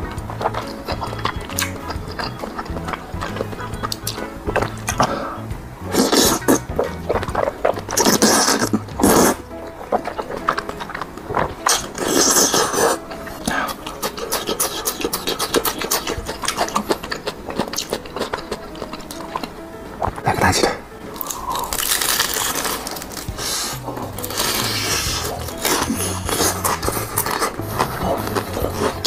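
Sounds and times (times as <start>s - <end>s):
wet chewing and smacking: 0.0s - 5.2s, 5.8s - 20.5s, 21.1s - 29.0s
noodles being slurped: 0.0s - 20.5s, 21.1s - 29.0s.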